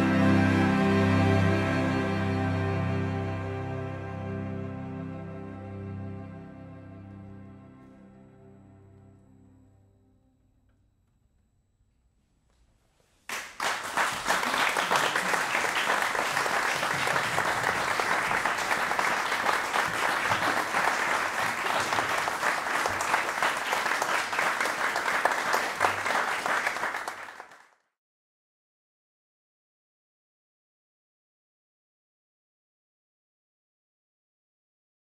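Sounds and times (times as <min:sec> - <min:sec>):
audience applauding: 0:13.3 - 0:27.8.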